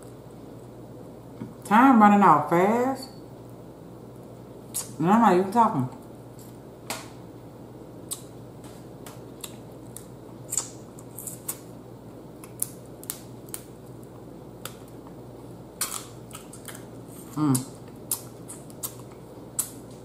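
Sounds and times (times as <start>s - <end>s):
steady low hum: 0.0s - 20.0s
clicks and smacks of crab shells: 12.4s - 15.1s
chewing: 15.8s - 19.8s.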